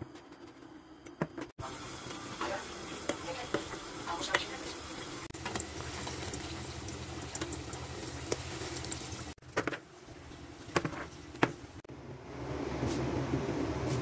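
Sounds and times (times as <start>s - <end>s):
vegetables frying in hot oil: 1.6s - 11.8s.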